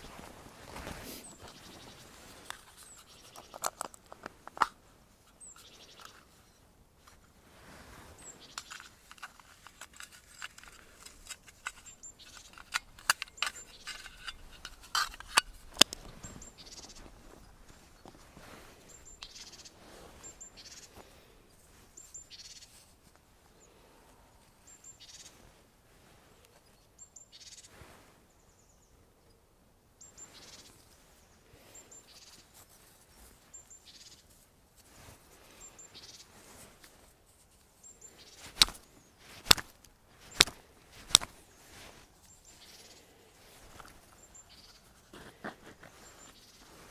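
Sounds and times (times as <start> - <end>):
bird chirping: 1.1 - 3.8, 5.2 - 6.7, 8.2 - 8.9, 15.9 - 18.2, 18.8 - 21.0, 22.0 - 22.8, 24.6 - 25.4, 26.6 - 27.7, 35.5 - 36.4, 41.5 - 45.0
hatchet snapping sticks: 38.4 - 38.8, 39.4 - 41.4
hatchet scraping bark: 38.4 - 41.4.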